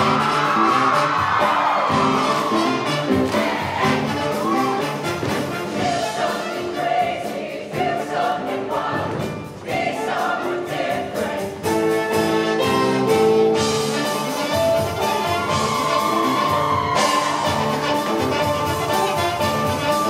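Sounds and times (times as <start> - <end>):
choir singing in harmony: 0.0 - 14.8
band accompaniment with beat: 0.0 - 20.0.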